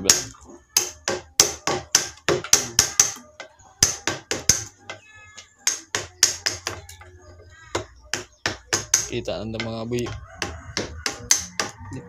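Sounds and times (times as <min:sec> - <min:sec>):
chisel hammered into wood: 0:00.0 - 0:03.2, 0:03.8 - 0:05.0, 0:05.6 - 0:06.9, 0:07.7 - 0:11.8.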